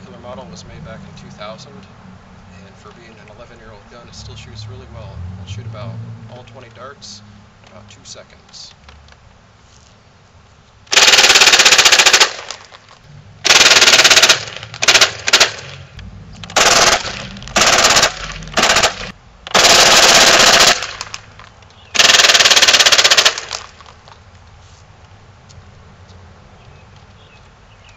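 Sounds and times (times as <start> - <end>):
toy dart blaster firing bursts: 10.9 - 12.7, 13.4 - 15.8, 16.5 - 21.3, 22.0 - 23.8.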